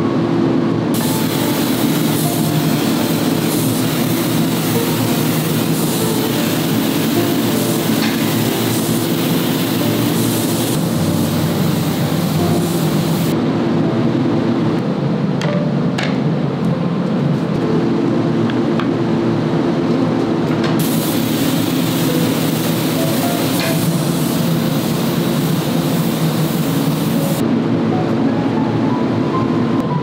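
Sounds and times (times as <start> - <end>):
spray gun hissing: 1.0 - 13.4, 20.8 - 27.4.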